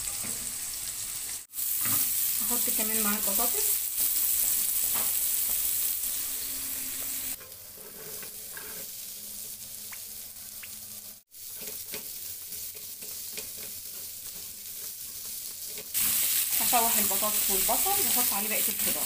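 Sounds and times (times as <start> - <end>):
onions sizzling in grill pan: 0.0 - 19.0
spatula stirring and scraping: 7.2 - 9.6, 11.4 - 16.3.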